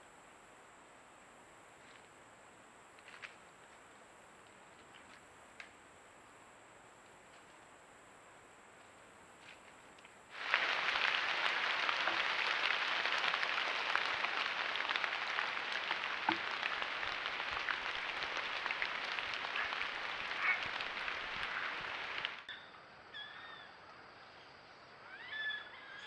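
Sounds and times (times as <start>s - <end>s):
rain on pond water and leaves: 9.4s - 22.5s.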